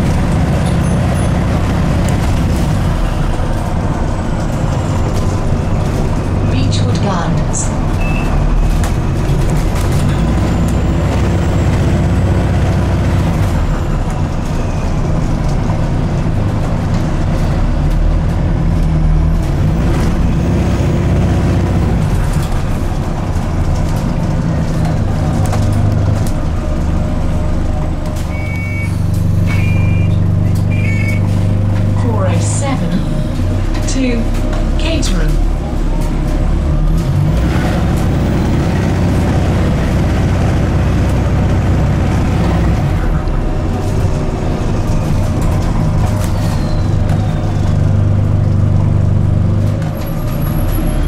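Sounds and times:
bus drivetrain hum: 0.0s - 51.0s
road rumble: 0.0s - 51.0s
short electronic beeps: 8.0s - 8.7s, 28.3s - 31.3s.

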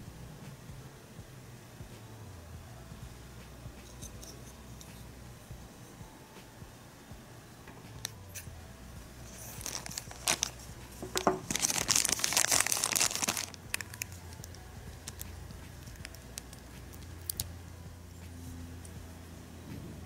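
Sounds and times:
plastic bag crinkling: 9.3s - 16.6s.

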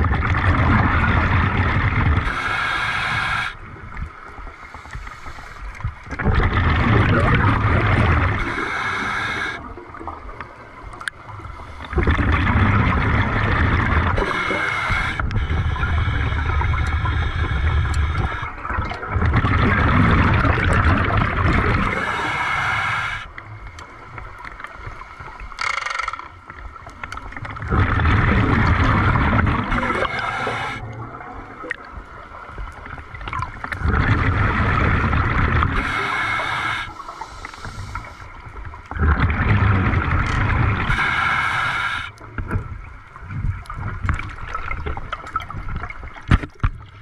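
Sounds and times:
bubbling exhalations underwater: 0.0s - 2.4s, 6.1s - 9.7s, 11.9s - 22.4s, 27.5s - 31.9s, 33.3s - 36.6s, 38.9s - 41.2s
regulator inhalation hiss: 2.2s - 3.6s, 8.3s - 9.7s, 14.2s - 18.5s, 21.9s - 23.4s, 29.8s - 30.8s, 35.8s - 38.4s, 40.8s - 42.2s.

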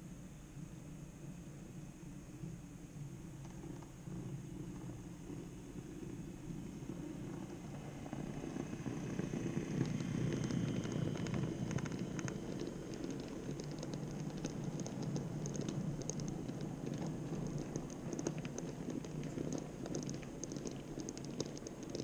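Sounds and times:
wheels clicking on rails: 3.4s - 22.0s
model train rumbling: 6.4s - 13.4s.

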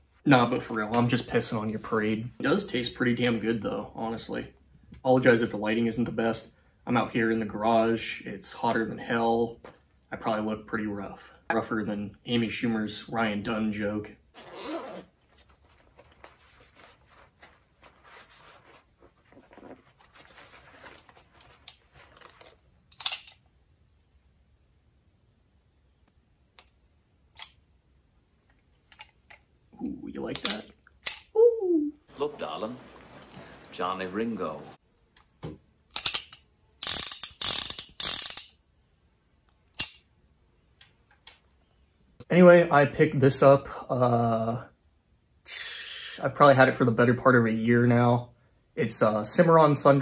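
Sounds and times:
rustling in a fabric bag: 14.4s - 22.4s
revolver metallic clicking: 35.9s - 38.6s.

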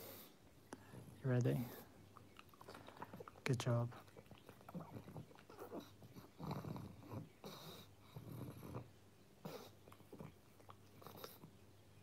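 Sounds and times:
dog snuffly breathing: 0.0s - 2.0s, 4.0s - 11.5s.

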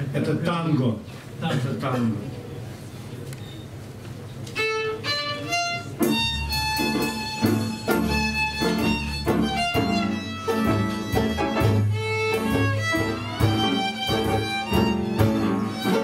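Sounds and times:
small band playing tango: 3.7s - 16.0s
bowed violin melody: 4.6s - 16.0s
double bass: 5.2s - 16.0s.

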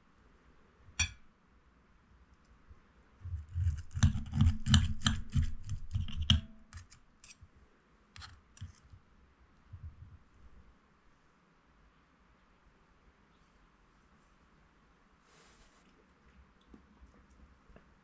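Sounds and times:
cutlery clinking on plate: 1.0s - 1.2s.

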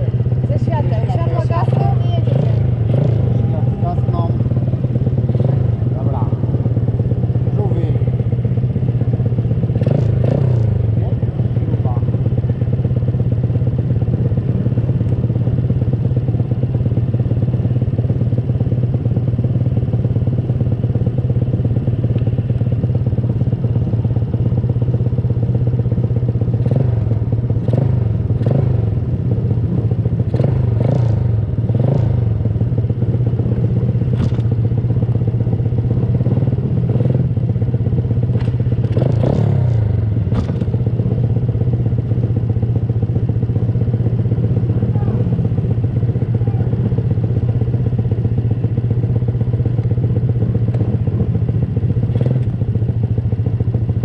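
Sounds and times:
pit bike engines running: 0.0s - 54.0s
short knocks and clatter: 40.3s - 40.7s.

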